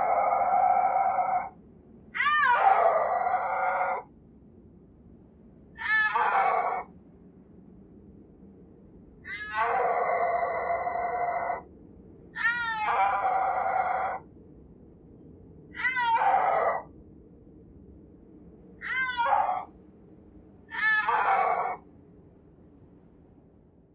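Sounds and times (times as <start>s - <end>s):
snow leopard crying: 0.0s - 1.6s, 2.2s - 4.0s, 5.8s - 6.9s, 9.3s - 11.6s, 12.4s - 14.2s, 15.7s - 16.9s, 18.8s - 19.7s, 20.7s - 21.8s.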